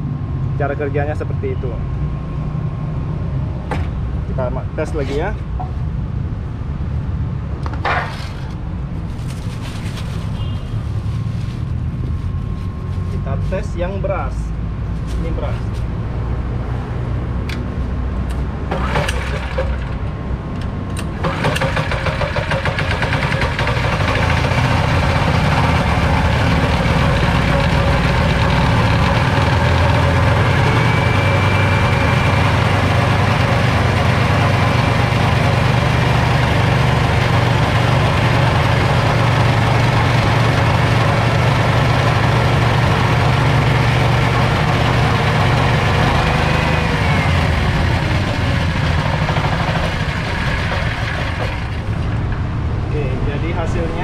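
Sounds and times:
petrol engine running: 18.2 - 52.8
grain mill grinding: 21.1 - 52.1.

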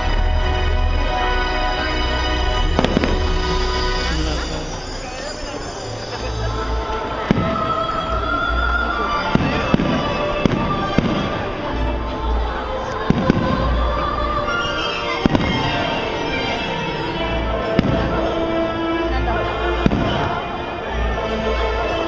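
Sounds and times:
low booming: 0.0 - 5.8, 6.7 - 14.5, 17.2 - 20.9
music playing: 0.0 - 22.0
fireworks bursting: 2.5 - 6.2, 6.9 - 18.5, 19.8 - 20.8.

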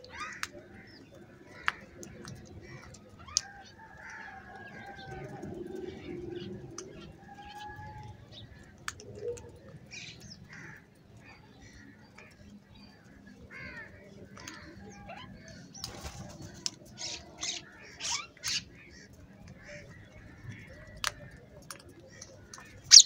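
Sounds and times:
birds calling: 0.0 - 23.0
beaks pecking on concrete: 0.1 - 23.0.

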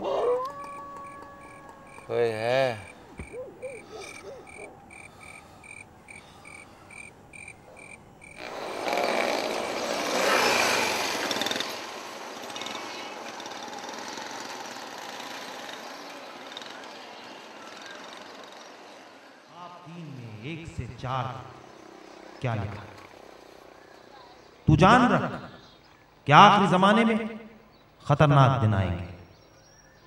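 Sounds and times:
vehicle passing loudly: 0.0 - 24.2
traffic hum: 0.0 - 30.0
night insects chirping: 1.0 - 8.5.

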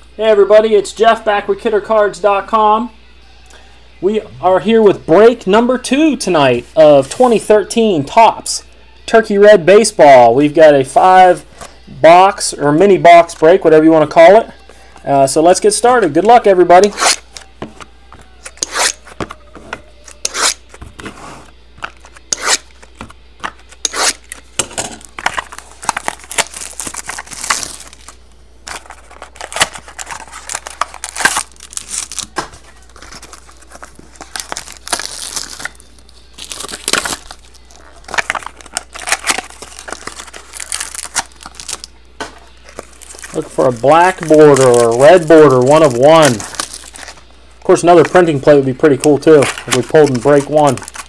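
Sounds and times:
cardboard packaging tearing and crinkling: 16.8 - 41.9, 42.5 - 47.3, 49.1 - 51.0.

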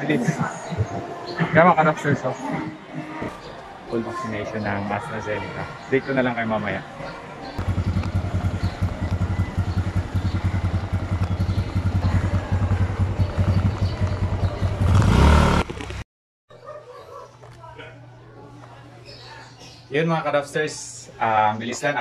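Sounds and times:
small motorcycle engine running: 7.6 - 16.0.

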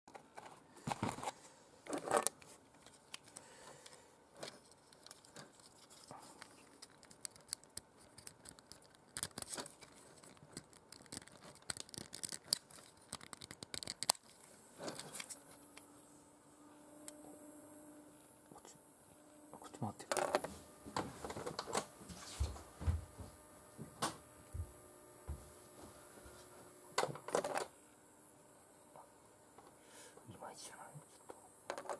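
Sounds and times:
hands handling plastic toy: 0.1 - 15.4
faint steady hum: 0.1 - 31.9.

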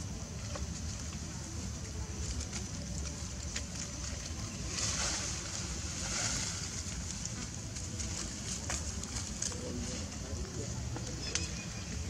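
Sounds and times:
hiss: 4.6 - 7.0.

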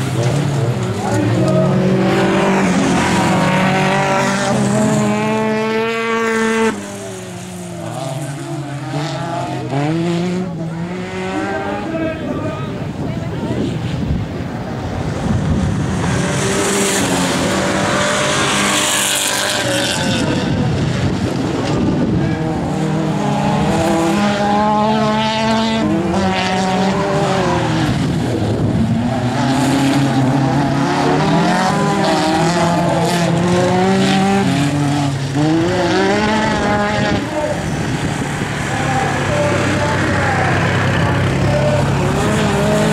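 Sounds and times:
race car engines revving: 0.0 - 42.9.

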